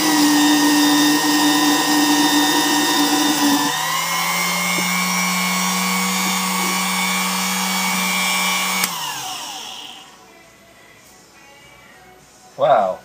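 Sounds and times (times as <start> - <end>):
drill press whining: 0.0 - 10.2
motor spinning down: 0.0 - 10.2
switch click: 8.7 - 9.0.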